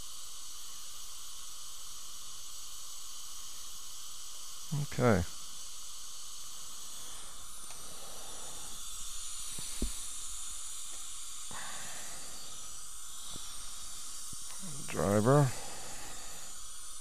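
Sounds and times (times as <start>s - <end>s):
dental suction hissing: 5.6s - 17.0s.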